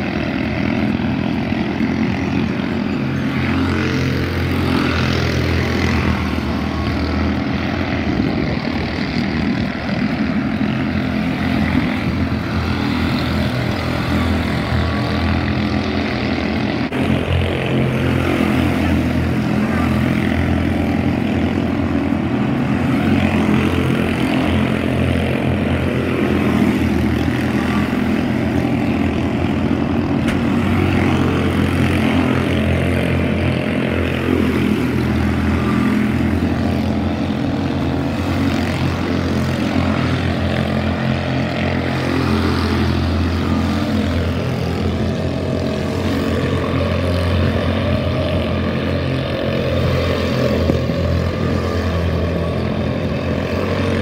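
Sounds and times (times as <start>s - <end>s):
small race car engines buzzing: 0.0s - 54.0s.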